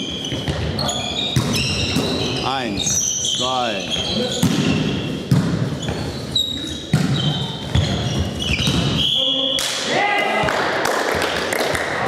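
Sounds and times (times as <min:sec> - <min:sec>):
sneakers squeaking: 0:00.0 - 0:09.6.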